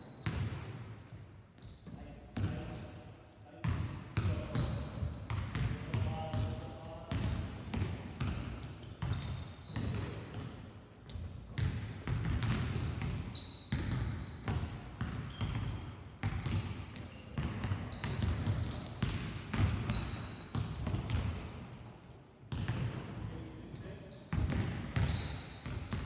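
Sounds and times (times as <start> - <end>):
sneakers squeaking on court: 0.0 - 21.9, 23.7 - 26.0
basketballs bouncing on gym floor: 0.1 - 2.8, 3.6 - 21.7, 22.5 - 23.3, 24.3 - 26.0.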